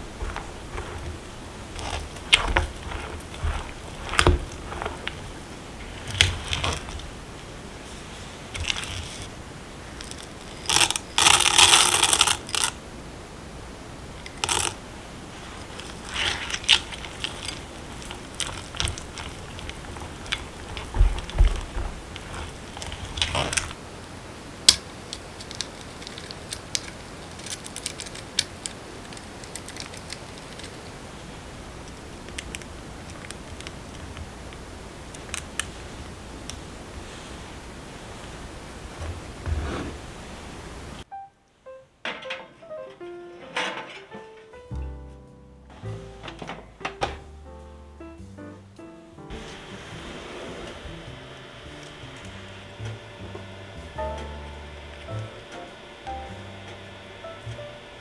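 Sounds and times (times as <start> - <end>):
rustling: 0.0 - 41.1.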